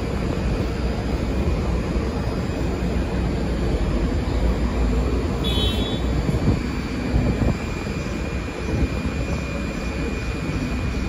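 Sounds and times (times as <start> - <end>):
faint high whine: 0.0 - 11.0
subway train equipment humming: 0.0 - 11.0.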